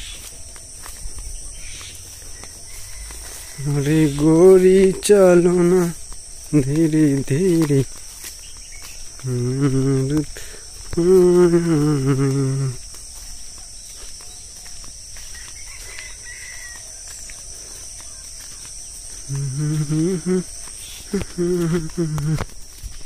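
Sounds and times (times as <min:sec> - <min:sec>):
insects chirring: 0:00.0 - 0:23.0
man singing: 0:03.6 - 0:08.0, 0:09.2 - 0:12.9, 0:19.2 - 0:22.5.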